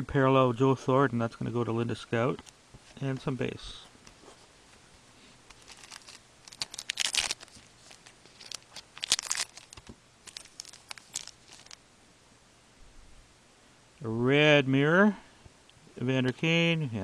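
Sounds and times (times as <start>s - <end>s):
cards being handled: 5.5s - 11.8s
wrapper tearing and crinkling: 5.5s - 11.8s.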